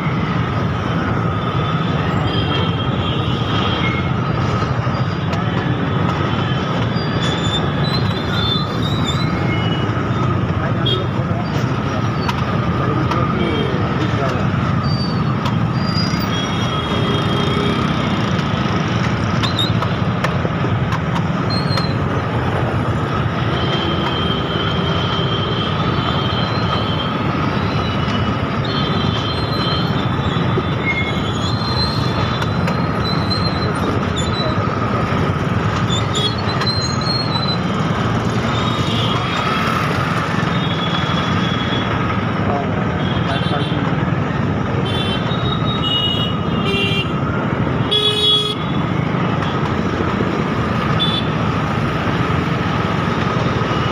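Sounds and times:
many motorcycle engines: 0:00.0 - 0:53.9
high-pitched squeals and beeps: 0:06.9 - 0:10.2, 0:27.6 - 0:35.0.

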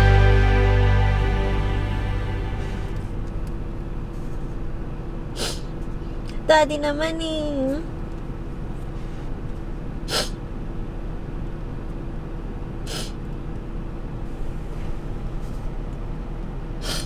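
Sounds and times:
woman sniffing: 0:05.4 - 0:05.8, 0:10.1 - 0:10.4, 0:12.9 - 0:13.2, 0:16.8 - 0:17.0.

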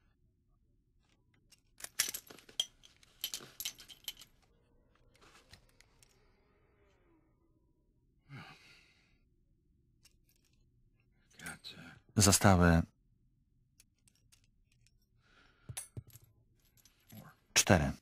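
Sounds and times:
brass cartridges clinking: 0:01.6 - 0:04.4.

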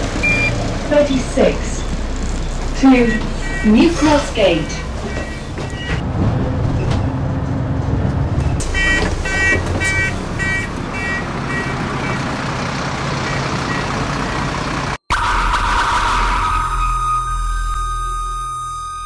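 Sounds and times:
bus engine rumbling: 0:00.0 - 0:19.0
door warning beeper: 0:02.8 - 0:06.0, 0:15.1 - 0:19.0.

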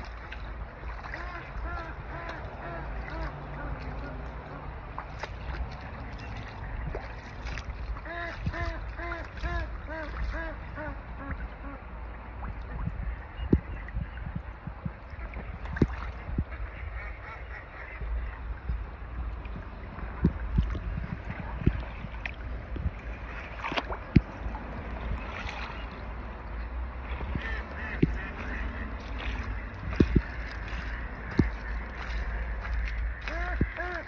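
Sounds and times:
ducks quacking: 0:00.0 - 0:11.9, 0:15.1 - 0:34.0
steady low rumble: 0:00.0 - 0:34.0
geese honking: 0:01.0 - 0:04.7, 0:08.0 - 0:11.8, 0:27.2 - 0:34.0.

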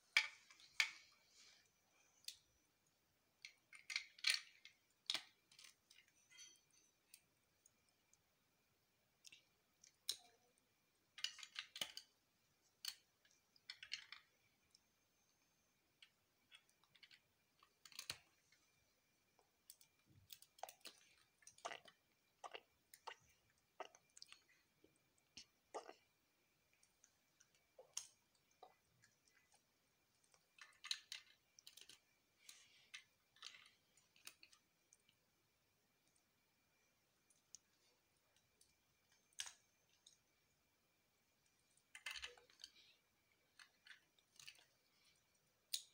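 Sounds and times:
plastic bricks clicking together: 0:03.4 - 0:06.1, 0:11.1 - 0:12.2, 0:12.8 - 0:14.3, 0:30.6 - 0:32.0.

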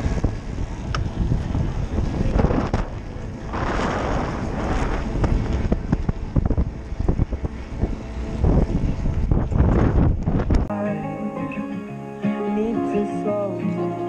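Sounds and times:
bicycle rattling over road: 0:00.0 - 0:10.7
steady low rumble: 0:00.0 - 0:10.7
wind buffeting a microphone: 0:00.0 - 0:10.7.

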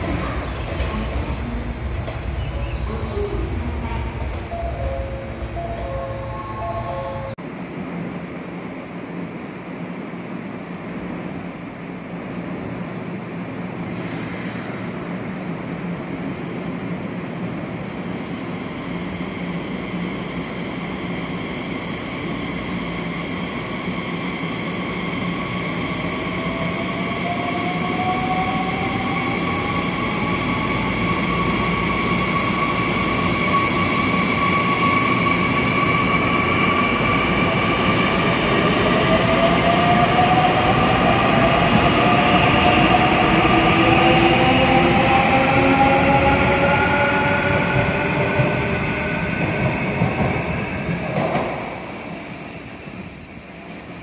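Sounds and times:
train running noise: 0:26.4 - 0:54.0.

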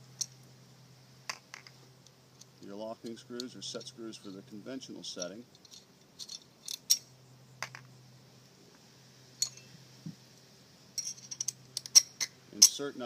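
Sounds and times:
small parts clicking: 0:05.2 - 0:07.9, 0:11.0 - 0:12.8.

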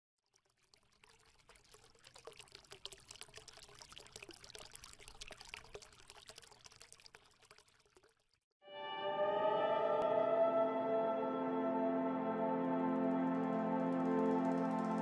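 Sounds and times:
bubbling water pops and trickles: 0:00.2 - 0:08.4
music with held notes: 0:08.7 - 0:15.0.

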